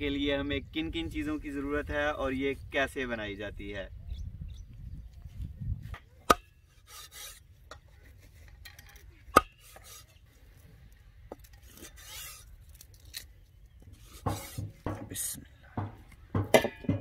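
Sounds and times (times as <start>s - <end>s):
blade scraping wood: 6.3s - 10.2s, 11.3s - 13.3s, 13.9s - 15.9s
cleaver chopping on wooden block: 14.2s - 15.2s.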